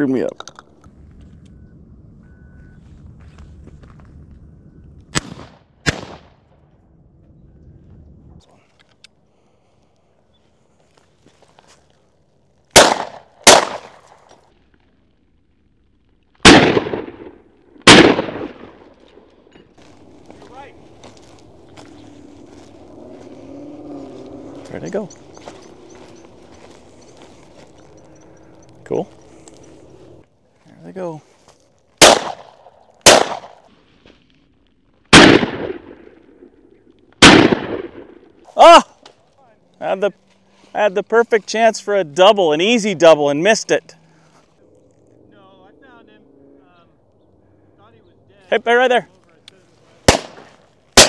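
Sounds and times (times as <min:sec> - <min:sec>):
shotgun shots: 0:05.1 - 0:06.4, 0:12.7 - 0:14.3, 0:16.4 - 0:18.9, 0:32.0 - 0:33.6, 0:35.1 - 0:36.5, 0:37.2 - 0:38.2, 0:50.0 - 0:51.0.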